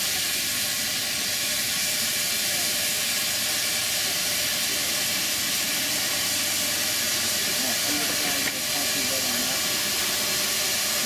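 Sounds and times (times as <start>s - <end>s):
steam hissing: 0.0s - 11.0s.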